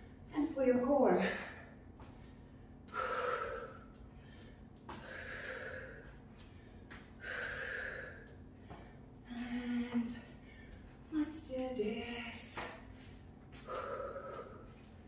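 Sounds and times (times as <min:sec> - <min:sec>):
woman breathing hard: 0:01.4 - 0:11.0, 0:13.5 - 0:15.0.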